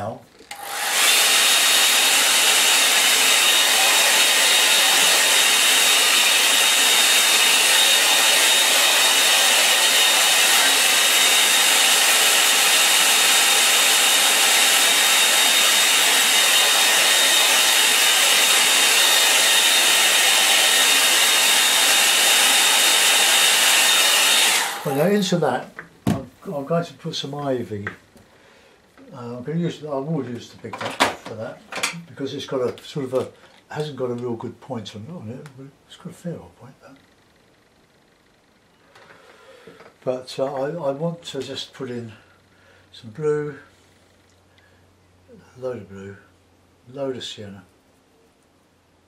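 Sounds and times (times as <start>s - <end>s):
hair dryer running: 0.5s - 25.3s.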